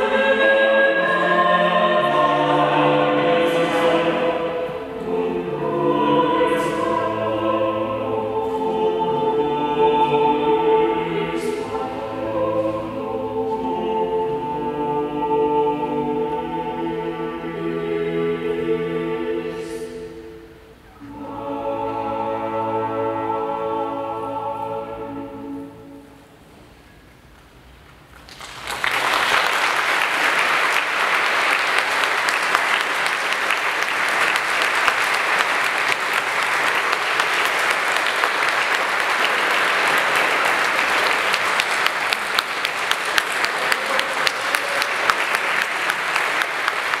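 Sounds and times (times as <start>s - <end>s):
choir and cello holding chord: 0.0s - 26.5s, 32.7s - 47.0s
audience applauding: 28.2s - 47.0s.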